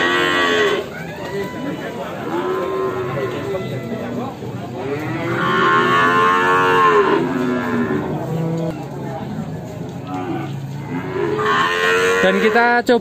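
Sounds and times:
cattle mooing: 0:00.0 - 0:09.3, 0:10.0 - 0:12.8.

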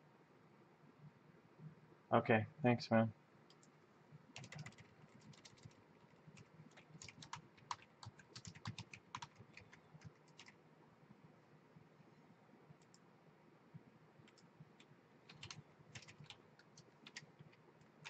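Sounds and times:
keyboard typing: 0:03.5 - 0:03.7, 0:04.4 - 0:10.6, 0:12.8 - 0:13.0, 0:14.2 - 0:18.0.

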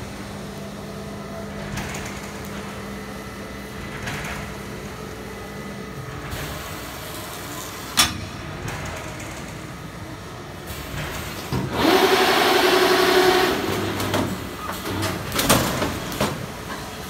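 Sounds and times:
film winder mechanical hum: 0:11.5 - 0:15.3.

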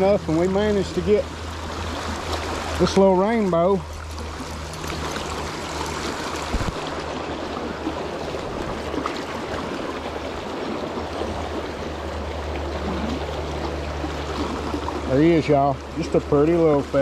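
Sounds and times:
river water rushing over rocks: 0:00.0 - 0:17.0.

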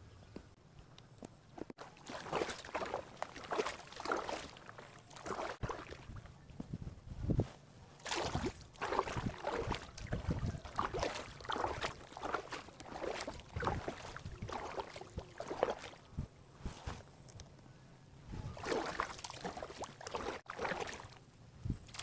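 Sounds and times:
paddle strokes splashing water: 0:01.7 - 0:06.2, 0:08.0 - 0:16.1, 0:18.6 - 0:21.2.

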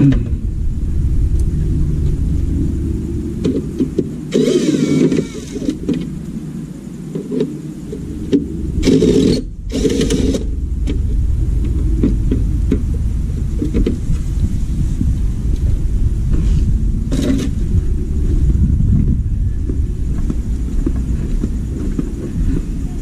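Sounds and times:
low rumble: 0:00.0 - 0:23.0
cordless drill running: 0:04.3 - 0:05.7.

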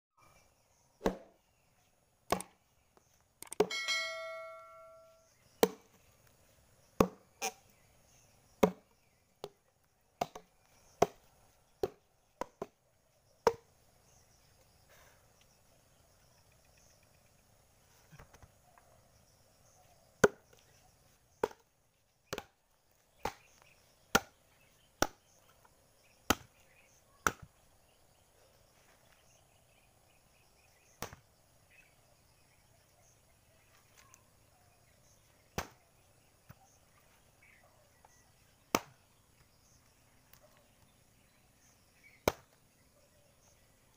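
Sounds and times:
axe chopping wooden log: 0:01.0 - 0:01.3, 0:02.3 - 0:02.5, 0:05.6 - 0:05.9, 0:07.0 - 0:07.2, 0:08.6 - 0:09.6, 0:10.2 - 0:11.2, 0:11.8 - 0:12.8, 0:20.2 - 0:20.5, 0:21.4 - 0:21.7, 0:22.3 - 0:22.6, 0:23.2 - 0:24.4, 0:25.0 - 0:25.2, 0:26.3 - 0:26.5, 0:27.2 - 0:27.5, 0:31.0 - 0:31.2, 0:35.6 - 0:35.8, 0:38.7 - 0:39.0, 0:42.2 - 0:42.6
metallic ring: 0:03.7 - 0:05.3.

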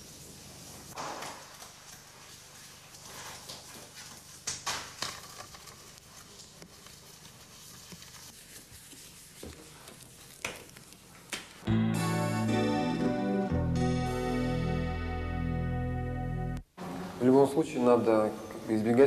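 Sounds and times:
rubber gloves rustling and snapping: 0:01.0 - 0:11.7
acoustic guitar music: 0:11.6 - 0:17.0.

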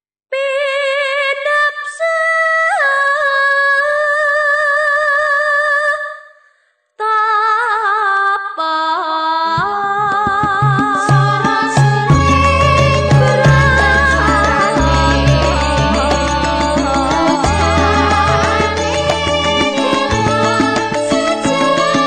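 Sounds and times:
woman singing unaccompanied: 0:07.0 - 0:22.0
struck gamelan instruments: 0:10.6 - 0:22.0.

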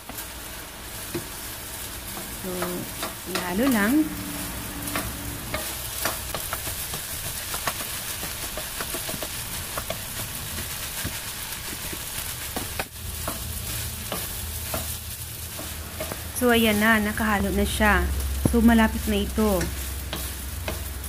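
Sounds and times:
fried rice sizzling in a pan: 0:00.0 - 0:21.0
spatula tapping a pan: 0:02.1 - 0:03.8, 0:04.9 - 0:16.3, 0:18.2 - 0:21.0.

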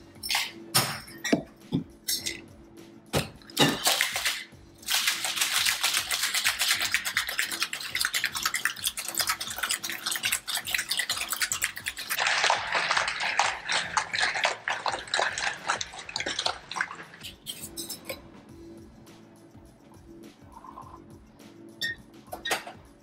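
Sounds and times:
ice rattling in cocktail shaker: 0:03.6 - 0:18.1.

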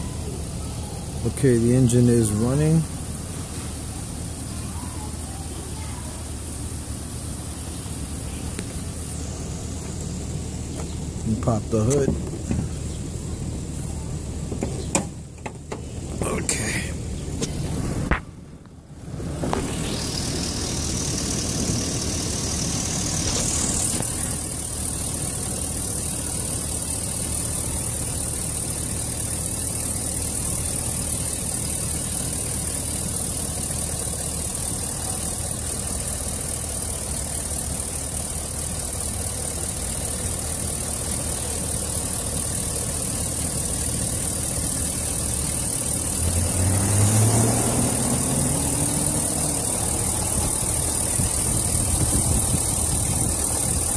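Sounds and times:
truck engine idling: 0:00.0 - 0:53.9.

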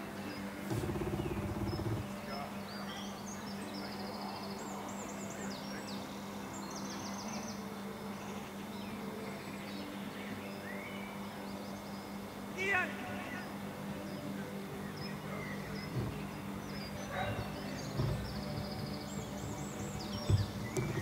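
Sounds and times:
steady low hum: 0:00.0 - 0:03.5
small birds chirping: 0:00.0 - 0:21.0
loud low buzzing: 0:00.4 - 0:02.4.

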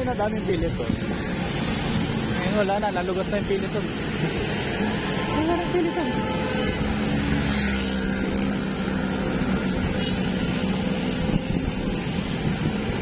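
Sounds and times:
motor vehicle engine humming: 0:00.0 - 0:13.0
wind rushing over microphone: 0:08.2 - 0:13.0.

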